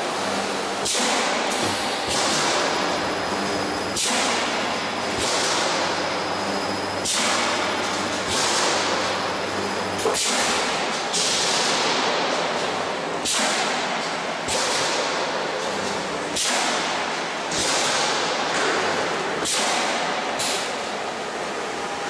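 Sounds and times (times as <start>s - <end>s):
machinery running: 1.5s - 13.2s.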